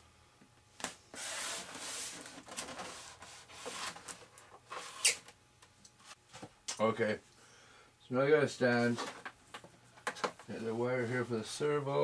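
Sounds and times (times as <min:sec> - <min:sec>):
foam model airplane rubbing and scraping: 0:01.2 - 0:04.0.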